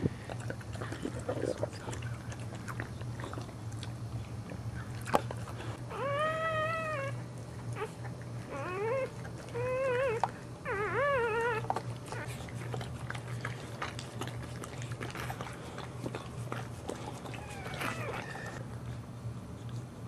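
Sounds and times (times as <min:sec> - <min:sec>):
steady low hum: 0:00.0 - 0:20.0
puppy crying: 0:05.8 - 0:12.8, 0:17.0 - 0:18.6.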